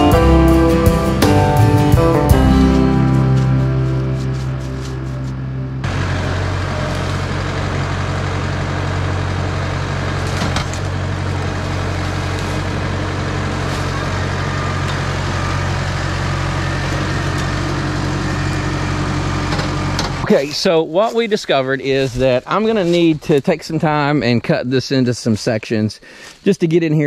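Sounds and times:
tractor diesel engine running: 0:00.0 - 0:24.6
branches cracking: 0:03.0 - 0:06.2, 0:09.2 - 0:20.2.

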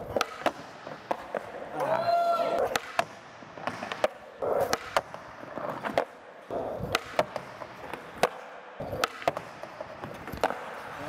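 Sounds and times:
skateboard clacks: 0:00.0 - 0:11.0
skateboard rolling on concrete: 0:00.0 - 0:11.0.

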